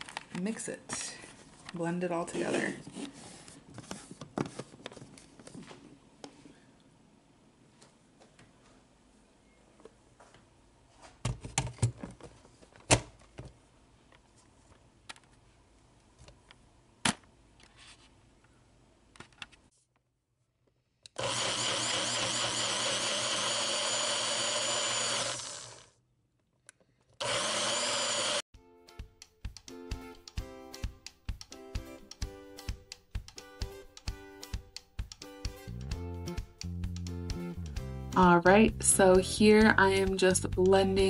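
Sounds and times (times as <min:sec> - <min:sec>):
blender motor running: 0:21.2 - 0:26.0, 0:27.2 - 0:28.4.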